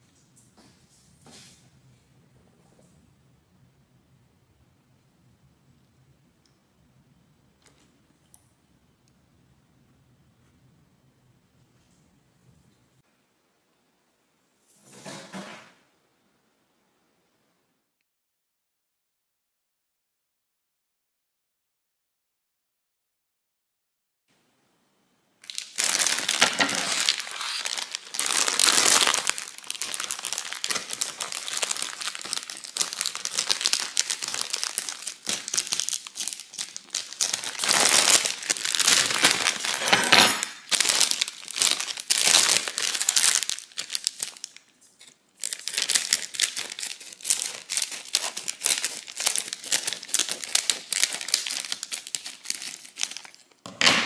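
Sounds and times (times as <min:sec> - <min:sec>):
plastic bags crinkling: 0:25.4 - 0:53.6.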